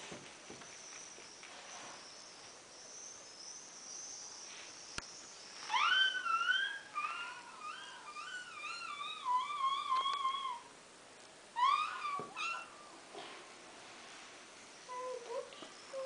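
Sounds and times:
puppy whining: 5.6 - 10.7, 11.6 - 13.0, 14.9 - 16.0.

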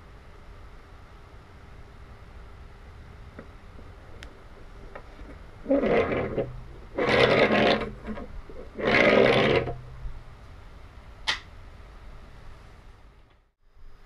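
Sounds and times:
short scraping noises: 5.0 - 9.8
sharp click: 11.2 - 11.5.

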